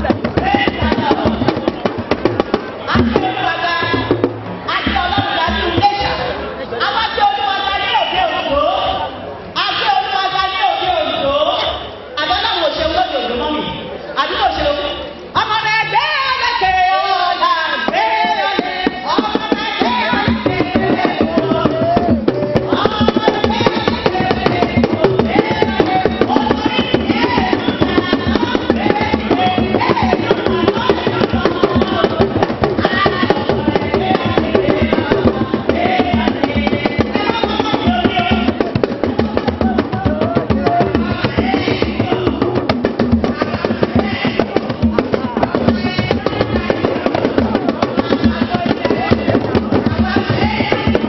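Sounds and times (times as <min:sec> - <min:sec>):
person singing through microphone: 0:00.0 - 0:02.1, 0:02.8 - 0:51.0
hand drums fast rhythm: 0:00.0 - 0:06.2, 0:17.9 - 0:51.0.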